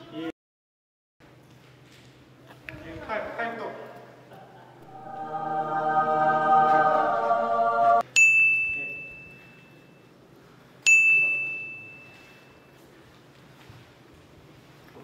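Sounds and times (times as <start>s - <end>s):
choir-like chord: 4.8s - 8.0s
bright bell dings: 8.1s - 10.0s, 10.9s - 12.8s.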